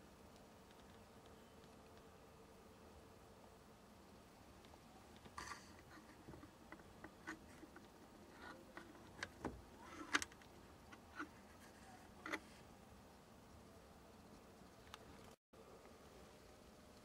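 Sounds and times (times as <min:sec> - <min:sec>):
small handling clicks and taps: 0:04.6 - 0:12.5.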